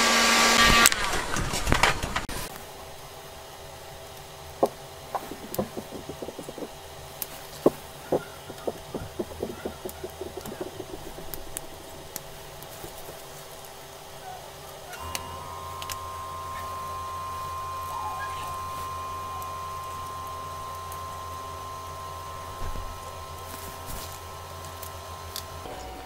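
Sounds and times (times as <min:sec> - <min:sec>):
handling knocks: 0:04.6 - 0:06.8, 0:07.6 - 0:12.2.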